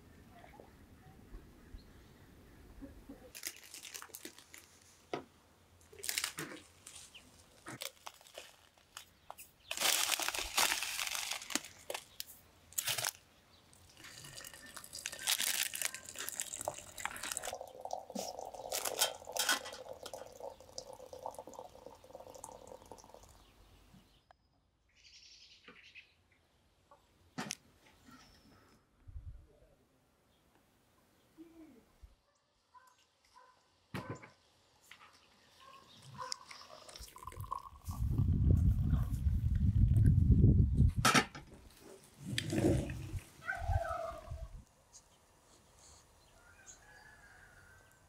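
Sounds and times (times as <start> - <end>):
crinkling handling noises: 3.3 - 5.2, 5.8 - 20.0
water pouring into teapot: 13.9 - 23.4, 36.5 - 38.4
teapot clink: 14.2 - 23.0.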